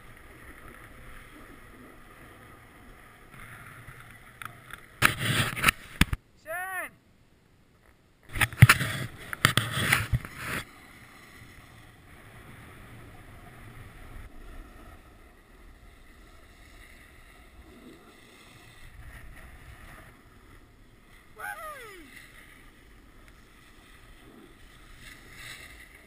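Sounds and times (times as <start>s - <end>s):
rough scraping and buffeting: 8.3s - 21.4s
sliding over packed snow: 8.4s - 26.0s.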